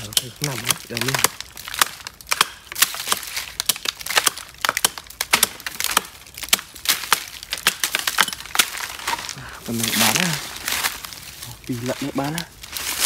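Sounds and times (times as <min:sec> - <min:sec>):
hatchet chopping tree trunk: 0:00.0 - 0:09.3.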